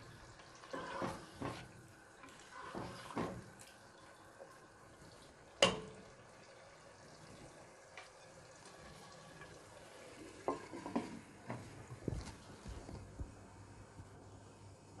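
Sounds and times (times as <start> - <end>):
spatula stirring wet gravy: 0.2 - 3.5, 10.2 - 12.0.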